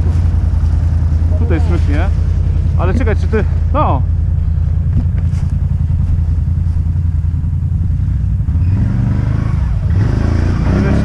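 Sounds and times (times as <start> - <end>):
atv engine running: 0.0 - 11.0.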